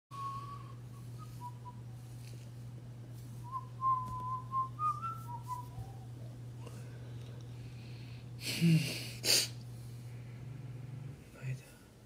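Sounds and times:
man whistling a tune: 0.1 - 1.8, 3.4 - 6.0
steady low hum: 0.1 - 12.0.

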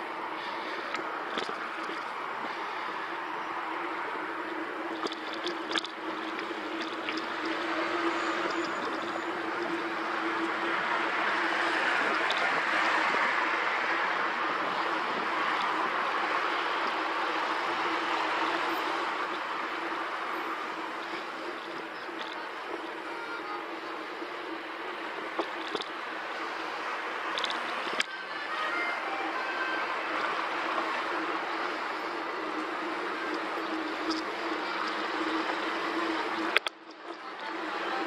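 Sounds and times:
tyres rolling on tarmac: 0.0 - 38.0
wind on microphone: 1.1 - 23.1.

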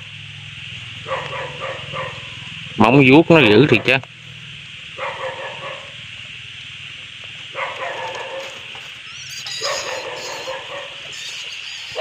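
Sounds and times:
animal calling: 0.0 - 2.7, 4.9 - 6.1, 7.4 - 12.0
steady high hiss: 0.0 - 12.0.

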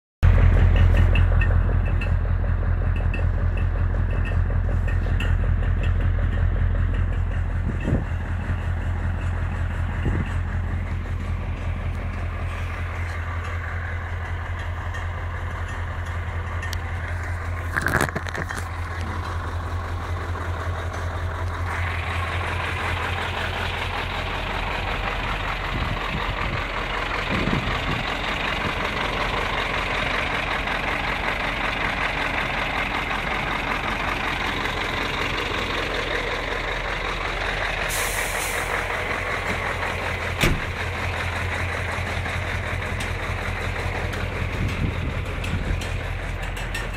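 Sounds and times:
diesel truck engine idling: 0.2 - 46.9
engine knock: 0.2 - 46.9.

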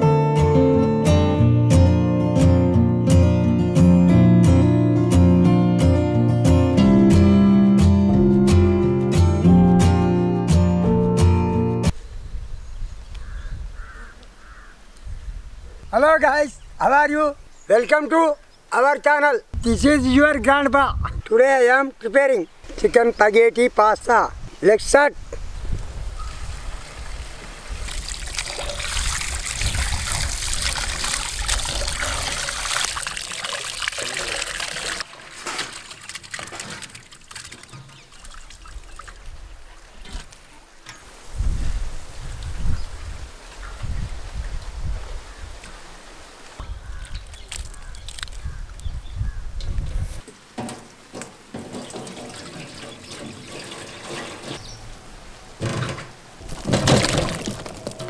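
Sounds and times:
water pouring and splashing: 26.5 - 40.5, 46.4 - 48.4, 50.2 - 54.7, 55.6 - 58.0.

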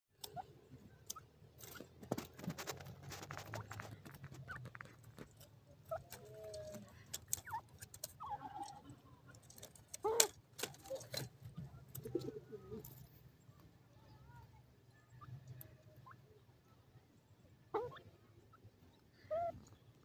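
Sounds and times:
pecking clicks in sandy soil: 0.2 - 13.3
birds clucking calls: 0.2 - 13.4, 17.6 - 20.0.

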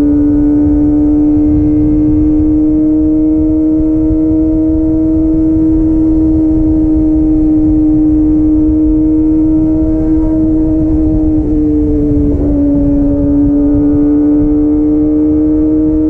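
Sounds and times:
motorcycle engine at high revs: 0.0 - 16.0
wind and road noise: 0.0 - 16.0.

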